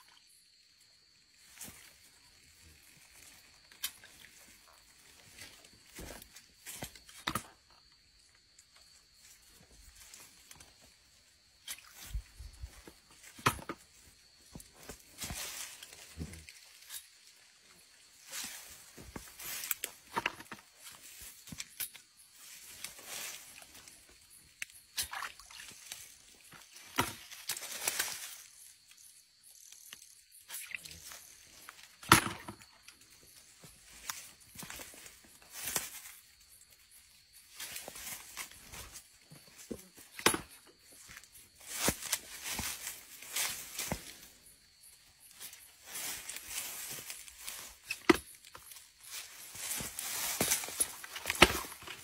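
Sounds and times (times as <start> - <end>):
water splashing and sloshing: 25.0 - 27.3
dead leaves rustling: 41.4 - 52.0.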